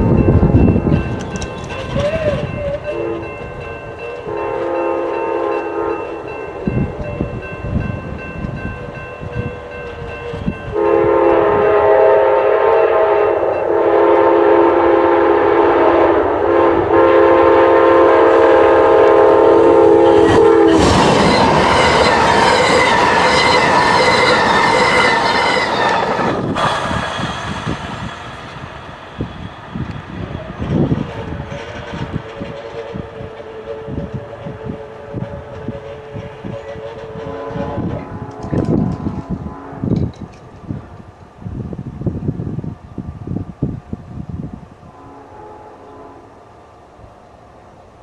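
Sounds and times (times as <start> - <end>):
train wheels clattering past: 0.0 - 12.2, 18.9 - 40.7
locomotive horn blasts: 1.6 - 7.5, 8.8 - 26.0, 31.0 - 40.1, 44.9 - 46.4.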